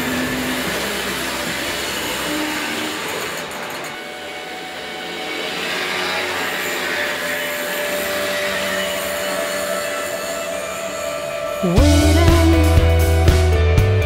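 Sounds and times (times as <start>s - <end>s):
moped engine running: 11.6s - 14.0s.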